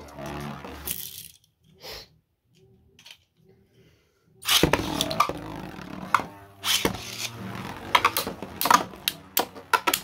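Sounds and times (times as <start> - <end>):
spinning tops whirring: 4.4 - 10.0.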